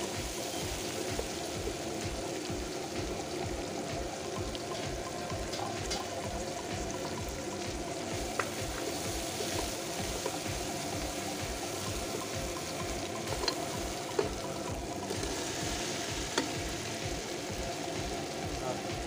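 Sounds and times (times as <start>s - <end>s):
hot oil sizzling: 0.0s - 19.0s
wooden spoon tapping pot: 8.3s - 10.4s, 12.6s - 14.4s, 16.3s - 16.6s.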